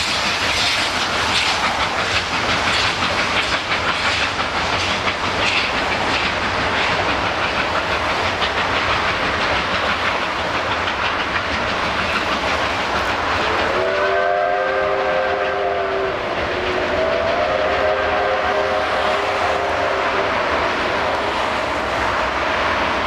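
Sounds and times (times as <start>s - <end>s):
train rumbling and clickety-clack: 0.0s - 23.0s
multi-note train whistle: 13.4s - 21.5s.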